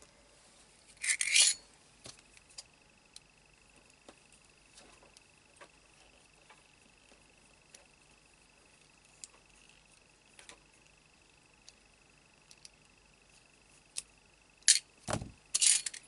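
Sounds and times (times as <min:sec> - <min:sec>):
small metal clicks: 0:15.5 - 0:16.0.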